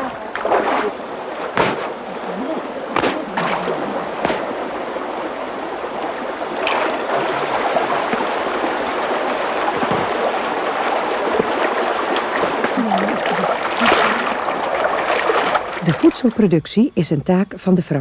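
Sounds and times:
faint voices: 0:00.0 - 0:04.6, 0:12.6 - 0:14.8
stream running over stones: 0:00.0 - 0:16.5
cloth splashing in water: 0:00.3 - 0:04.9, 0:06.5 - 0:16.0.

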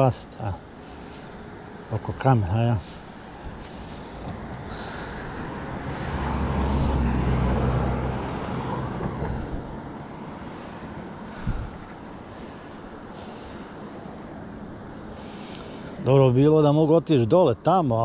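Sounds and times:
crickets buzzing: 0:00.0 - 0:18.0
vehicle engine passing by: 0:03.8 - 0:11.2.

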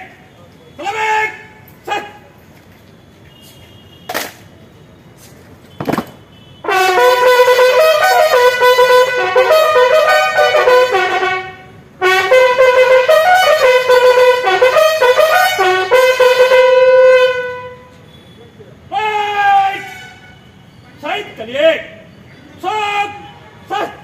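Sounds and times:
solo bugle call: 0:06.3 - 0:19.0.

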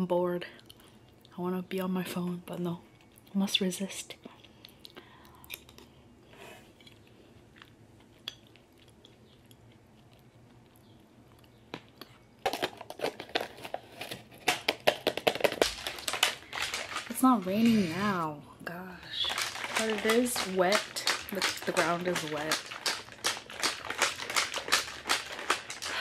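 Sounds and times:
chewing: 0:02.9 - 0:03.4, 0:04.2 - 0:12.3, 0:19.2 - 0:26.0
packet crinkling and rattling: 0:12.4 - 0:18.2, 0:19.0 - 0:26.0.

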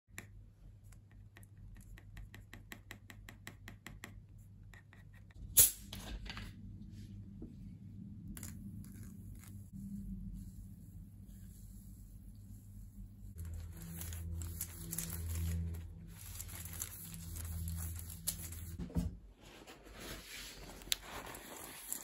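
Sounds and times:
brush swishing: 0:09.7 - 0:18.8
pencil scratching on foil: 0:13.3 - 0:18.8, 0:20.0 - 0:22.0.

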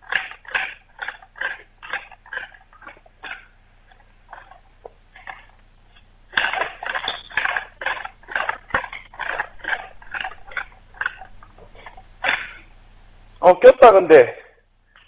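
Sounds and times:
wooden spindle grinding on board: 0:00.0 - 0:12.7.

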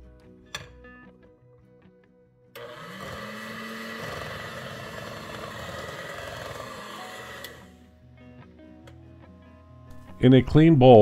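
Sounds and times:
electric hand mixer whirring: 0:02.6 - 0:07.9.

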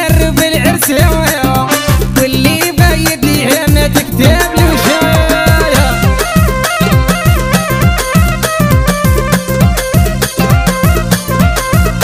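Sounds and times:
live band playing dance music: 0:00.0 - 0:12.0
low falling drum thumps: 0:04.1 - 0:06.6.

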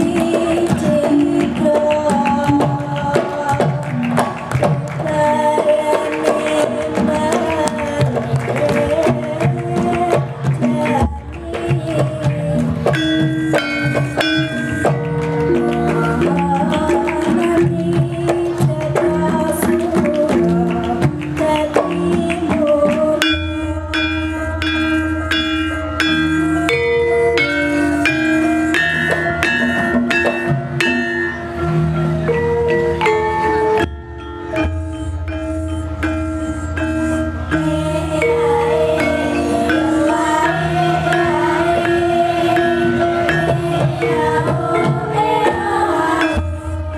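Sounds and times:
hand drum: 0:00.0 - 0:46.9
metallophones struck with mallets: 0:00.0 - 0:46.9
person singing wavering line: 0:05.0 - 0:46.9
gong chimes: 0:12.9 - 0:17.2, 0:23.2 - 0:46.9.

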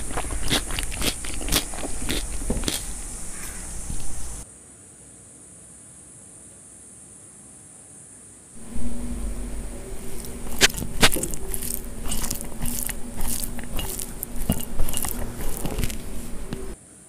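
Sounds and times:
wet sticky squishing of rice: 0:00.0 - 0:04.4, 0:08.6 - 0:16.8.

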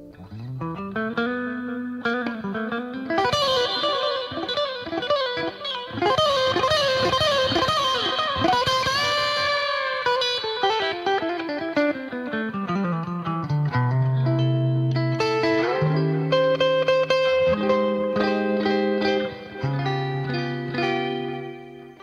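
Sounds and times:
music with sliding bending notes: 0:00.0 - 0:22.0.

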